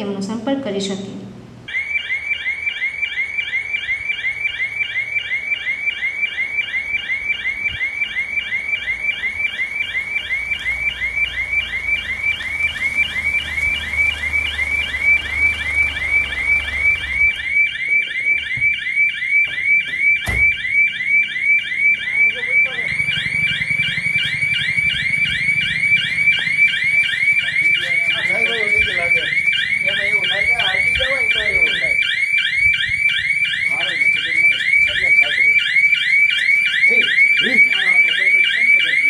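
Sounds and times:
burglar alarm siren whooping: 1.6s - 39.0s
vehicle engine rumbling: 8.3s - 17.7s, 21.8s - 32.0s.

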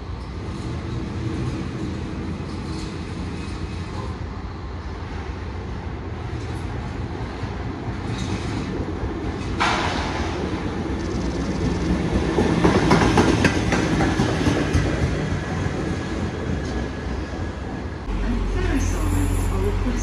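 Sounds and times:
diesel train engine rumble: 16.3s - 20.0s.

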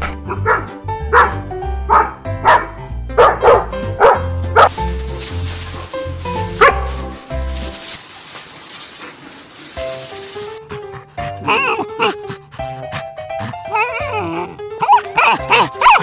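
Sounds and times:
background music: 0.0s - 16.0s
dog barking: 0.3s - 4.8s, 6.6s - 7.0s, 14.8s - 16.0s.

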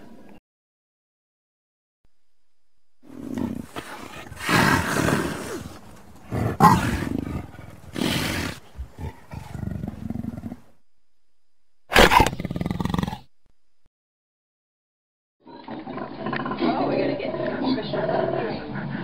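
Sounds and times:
snow leopard crying: 3.7s - 10.6s.

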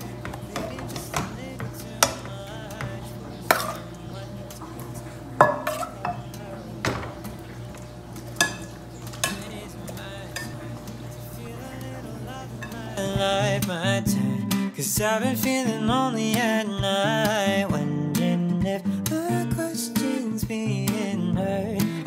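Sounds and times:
ladle clinking against pot: 0.2s - 11.2s, 12.6s - 13.2s.

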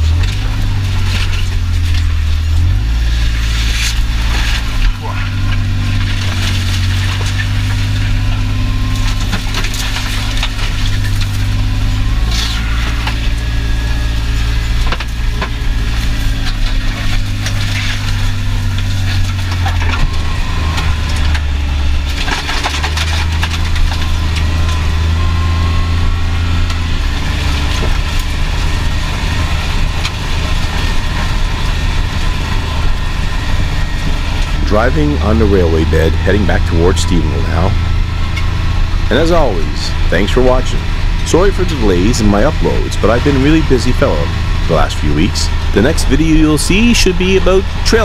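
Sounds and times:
vehicle engine running: 0.0s - 48.0s
rattles and knocks: 14.7s - 25.2s.

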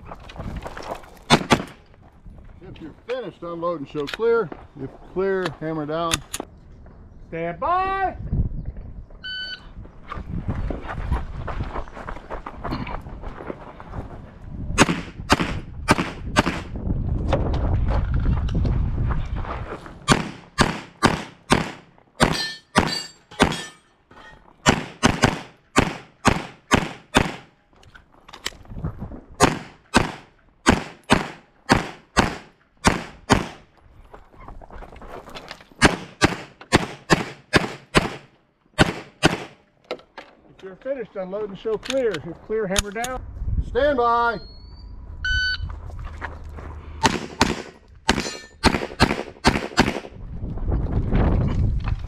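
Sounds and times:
pistol shots: 1.3s - 1.8s, 14.8s - 16.7s, 20.1s - 23.7s, 24.7s - 27.5s, 29.4s - 33.6s, 35.8s - 39.6s, 47.0s - 50.1s
low rumbling: 43.2s - 48.1s.

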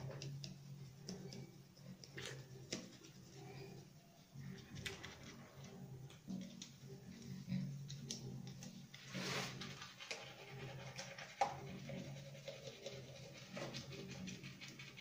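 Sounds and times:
toothbrush scrubbing teeth: 0.0s - 15.0s.

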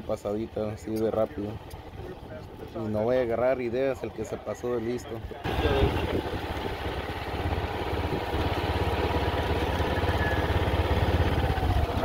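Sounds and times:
small gasoline engine running: 5.4s - 12.0s.

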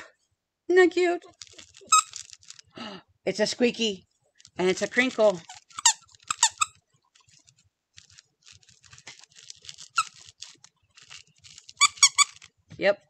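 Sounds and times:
dog toy crinkling: 1.2s - 2.8s, 4.3s - 12.7s
toy squeaker squeak: 1.8s - 2.2s, 5.3s - 6.8s, 9.9s - 10.2s, 11.8s - 12.5s.

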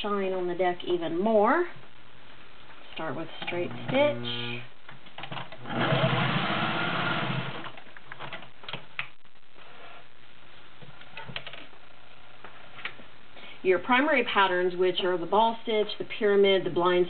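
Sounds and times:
sewing machine running fast: 5.7s - 7.6s.

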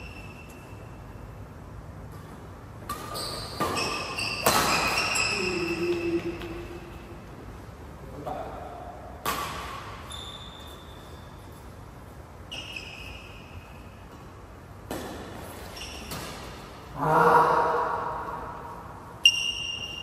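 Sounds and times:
shoes squeaking on court floor: 0.0s - 1.4s, 2.0s - 7.2s, 9.2s - 16.9s
racket striking shuttlecock: 2.8s - 5.4s, 9.2s - 10.0s.

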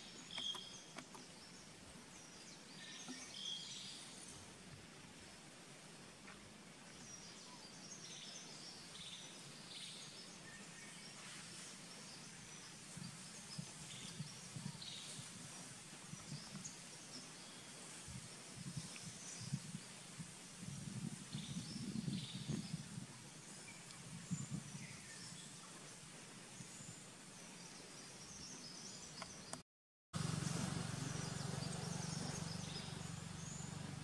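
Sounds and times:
bird chirps: 0.0s - 1.3s.

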